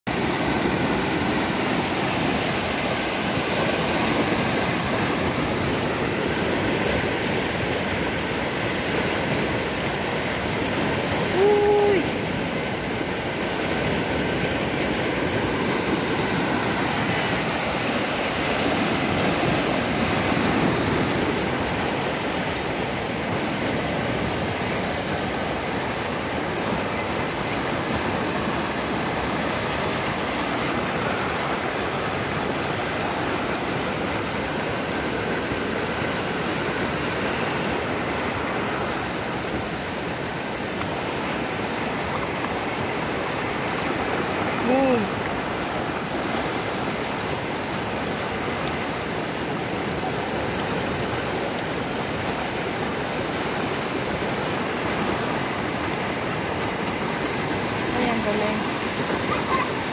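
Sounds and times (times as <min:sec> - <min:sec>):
whitewater rapids rushing: 0:00.1 - 0:59.9.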